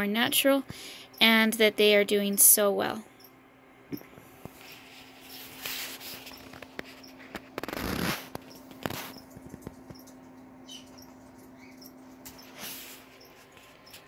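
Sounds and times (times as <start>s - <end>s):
rustling and clicking: 5.6s - 10.4s.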